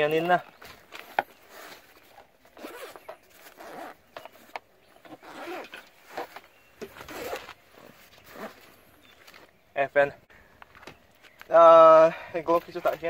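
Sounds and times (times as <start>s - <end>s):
zipper being pulled open: 1.0s - 8.8s.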